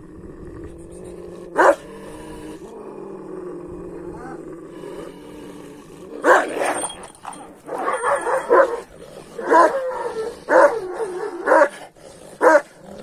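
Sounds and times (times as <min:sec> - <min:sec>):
dog barking aggressively: 0:01.6 - 0:01.8, 0:06.2 - 0:12.8.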